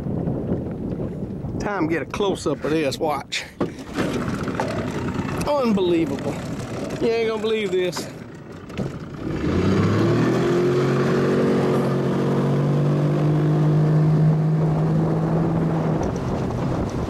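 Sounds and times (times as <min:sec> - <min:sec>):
outboard motor running: 0:03.6 - 0:17.0.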